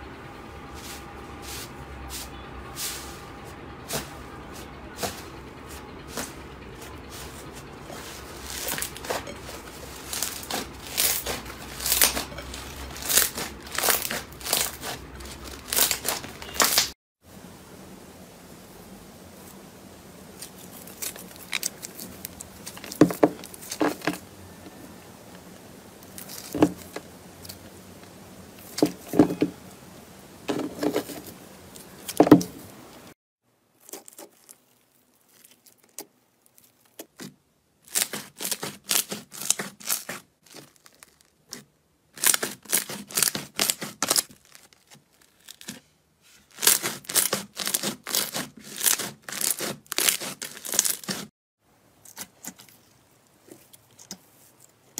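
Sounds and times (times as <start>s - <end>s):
foam slime crackling: 3.8s - 17.0s, 20.3s - 24.3s, 30.8s - 51.3s.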